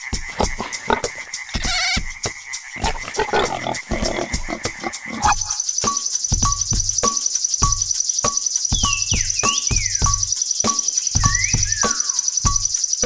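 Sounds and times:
frogs croaking: 0.0 - 13.0
pulsing insect trill: 0.0 - 13.0.

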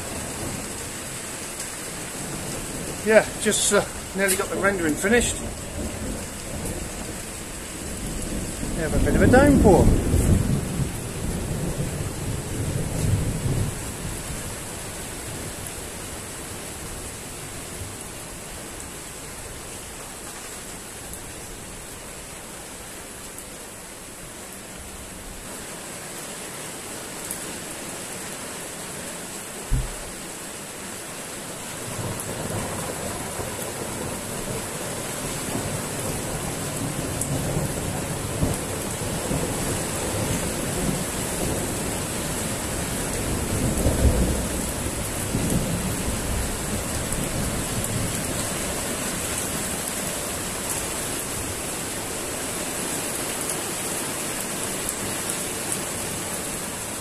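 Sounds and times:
heavy rain falling: 0.0 - 57.0
thunder rolling: 2.8 - 13.7
short low thump: 29.7 - 30.2.

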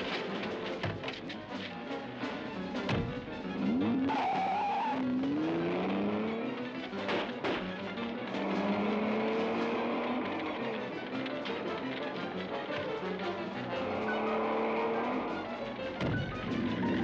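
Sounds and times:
film score music: 0.0 - 17.0
car engine revving hard: 3.5 - 6.6, 8.3 - 10.8, 13.8 - 15.3
tyre squeal: 3.6 - 5.4
sharp bangs: 6.6 - 11.8.

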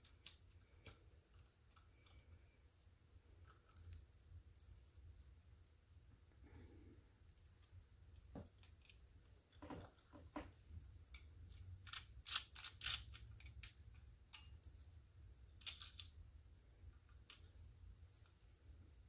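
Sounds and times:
small metal parts clicking and rattling: 0.0 - 2.6, 3.3 - 4.0, 7.4 - 10.4, 11.0 - 14.9, 15.5 - 16.3
low steady hum: 0.0 - 19.0.

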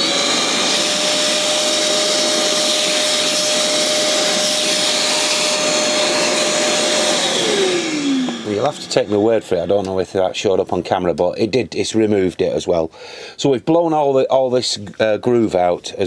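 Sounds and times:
vacuum cleaner motor whine: 0.0 - 10.0
vacuum motor winding down: 0.0 - 10.0.

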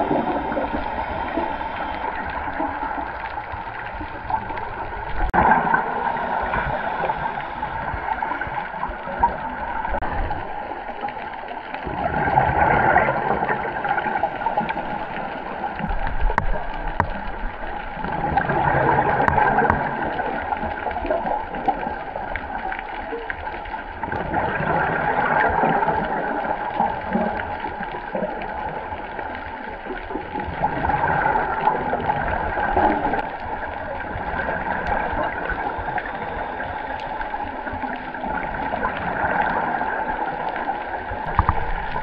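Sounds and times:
diver breathing through regulator: 0.0 - 2.9, 5.8 - 8.8
bubbles gurgling: 0.0 - 42.0.

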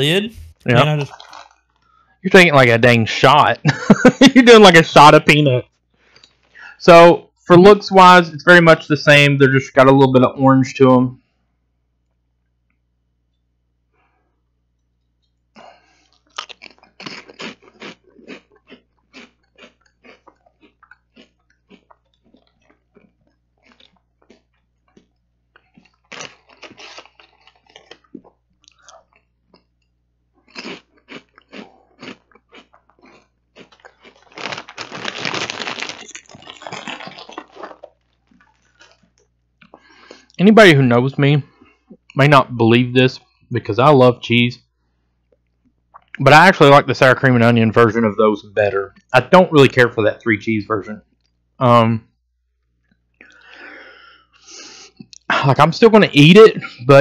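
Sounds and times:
chewing crunchy potato chips: 0.3 - 2.0, 15.2 - 40.4.

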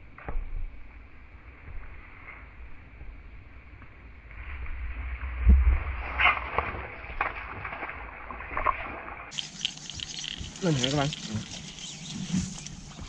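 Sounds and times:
fishing reel clicking and rattling: 9.3 - 12.0.

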